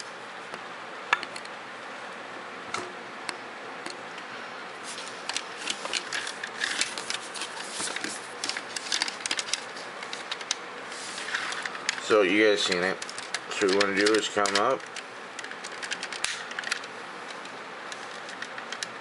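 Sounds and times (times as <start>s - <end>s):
plastic toy parts clicking: 12.7s - 16.9s.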